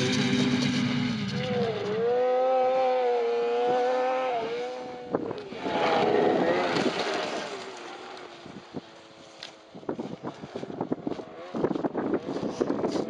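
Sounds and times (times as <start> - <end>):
snowmobile engine at high revs: 0.0 - 13.0
snow churning: 5.6 - 8.4.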